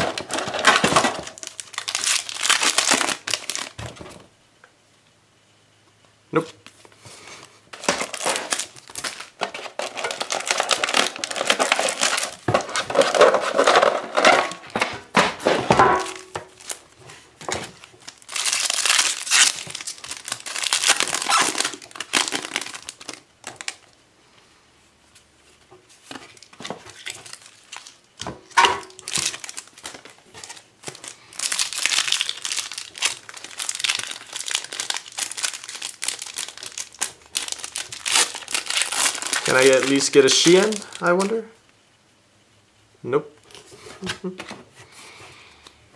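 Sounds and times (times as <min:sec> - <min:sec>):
foil wrappers crinkling and tearing: 0:00.0 - 0:04.0, 0:07.8 - 0:14.8, 0:15.4 - 0:24.0, 0:26.0 - 0:41.4.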